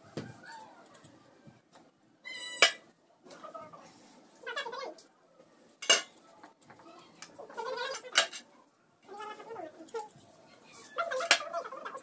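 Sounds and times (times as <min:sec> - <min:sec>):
ladle clinking against pot: 0:05.8 - 0:06.1.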